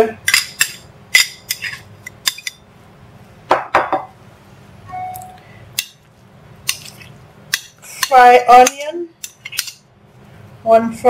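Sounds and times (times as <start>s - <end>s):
metal spoon clinking on bowls: 0.2s - 2.6s, 6.7s - 9.8s.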